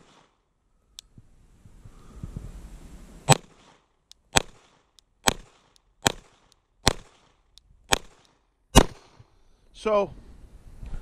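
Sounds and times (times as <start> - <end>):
pistol shots: 3.3 - 9.2.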